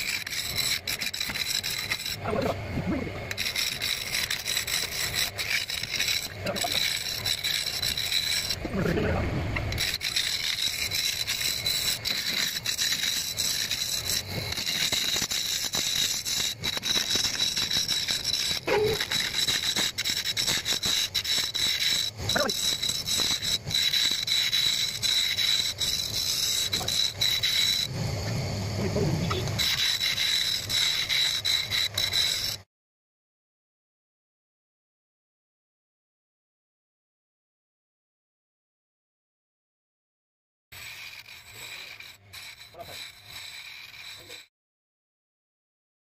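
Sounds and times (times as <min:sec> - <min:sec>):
wood lathe whining: 0:00.0 - 0:32.6, 0:40.8 - 0:44.5
chisel scraping spinning wood: 0:00.0 - 0:32.7, 0:40.7 - 0:44.5.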